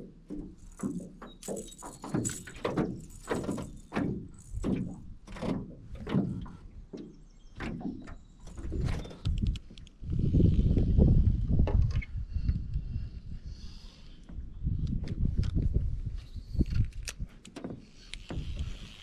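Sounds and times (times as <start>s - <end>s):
water slapping boat hull: 0.0s - 9.2s
wind gust on microphone: 8.6s - 13.8s, 14.4s - 17.3s.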